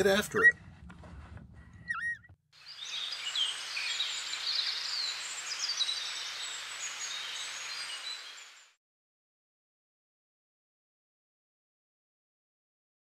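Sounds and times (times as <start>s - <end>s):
small birds chirping: 1.8s - 8.7s
steady hiss: 2.6s - 8.7s.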